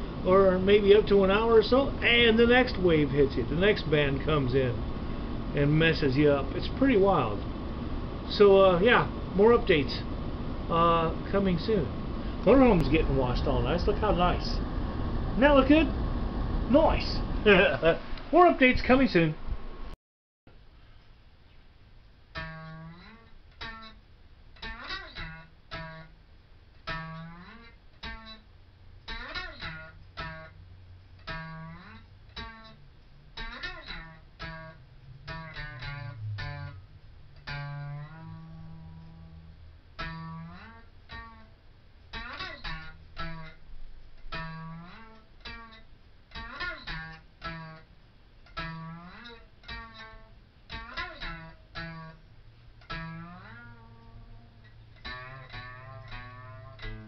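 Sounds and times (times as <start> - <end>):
slide guitar blues: 22.3 - 24.0, 24.6 - 26.1, 26.8 - 28.5, 29.1 - 30.6, 31.2 - 43.6, 44.2 - 52.2, 52.8 - 57.0.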